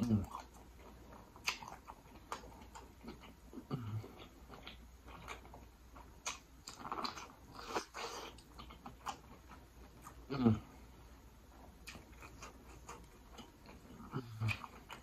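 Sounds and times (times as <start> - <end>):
lip smacks: 1.2 - 3.3.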